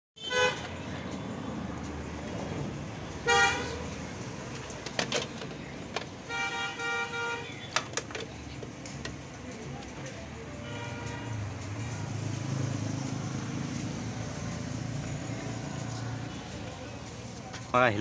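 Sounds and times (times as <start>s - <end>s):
vehicle horn tooting: 0.2s - 0.7s, 3.2s - 3.8s, 6.2s - 7.7s, 10.6s - 11.4s
street noise: 0.2s - 18.0s.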